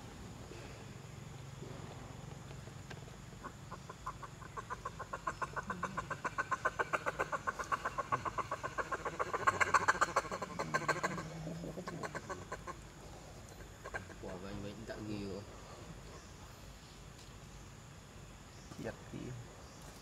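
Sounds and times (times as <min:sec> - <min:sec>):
rapid short animal calls: 0:03.4 - 0:12.9.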